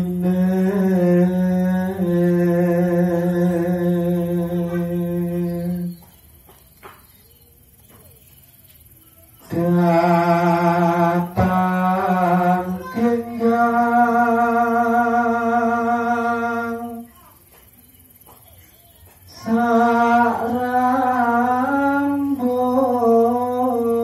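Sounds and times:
man singing alone: 0.0s - 6.0s, 9.4s - 17.1s, 19.3s - 24.0s.

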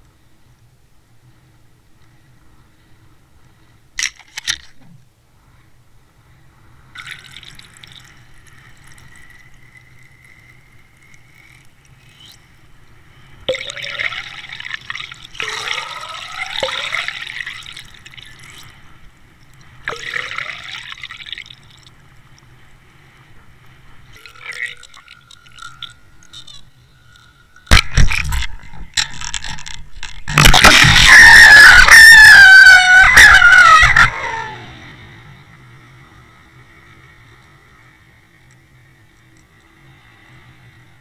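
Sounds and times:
underwater gurgling rush: 27.7s - 31.2s.

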